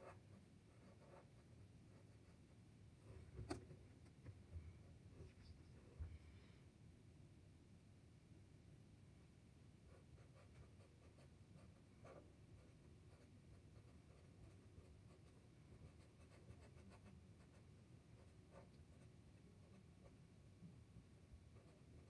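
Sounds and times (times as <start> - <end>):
marker scratching on paper: 0.0 - 2.4, 9.9 - 17.6.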